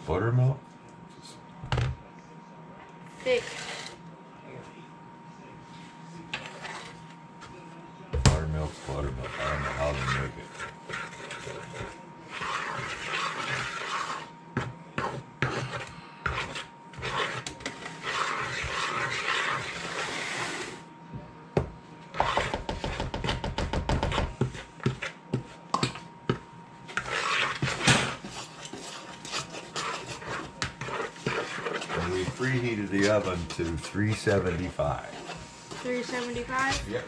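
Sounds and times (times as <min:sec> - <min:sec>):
fork scraping dough: 0:03.2 - 0:04.0, 0:06.2 - 0:07.1, 0:08.3 - 0:20.9, 0:22.1 - 0:25.6, 0:26.8 - 0:37.0.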